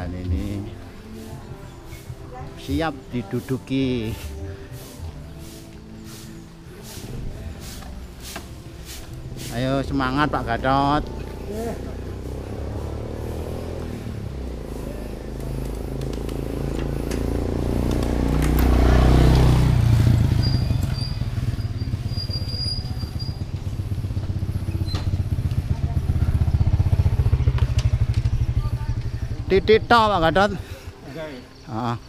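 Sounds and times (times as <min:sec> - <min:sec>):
bicycle tyre noise on asphalt: 0:08.7 - 0:30.8.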